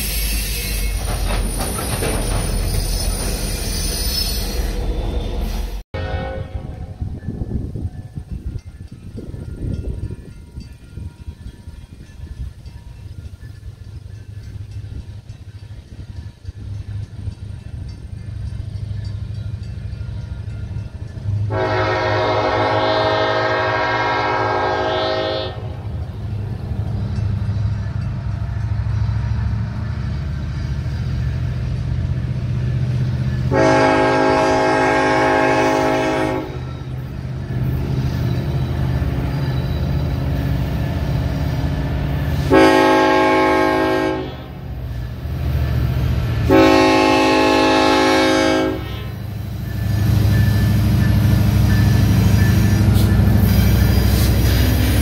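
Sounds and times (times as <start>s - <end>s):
locomotive air horn: 0.0s - 1.2s, 3.7s - 7.0s, 21.4s - 25.8s, 33.5s - 36.8s, 42.3s - 44.7s, 46.4s - 49.3s
locomotive rumble: 0.0s - 55.0s.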